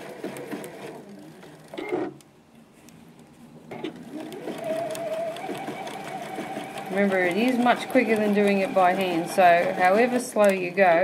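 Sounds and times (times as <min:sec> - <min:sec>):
sewing machine running: 0:00.0 - 0:02.0, 0:03.9 - 0:11.0.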